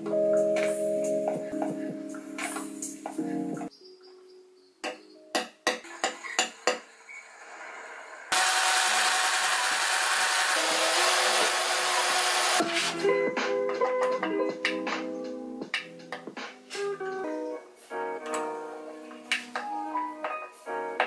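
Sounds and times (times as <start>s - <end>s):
cordless drill boring into wood: 8.3s - 12.6s.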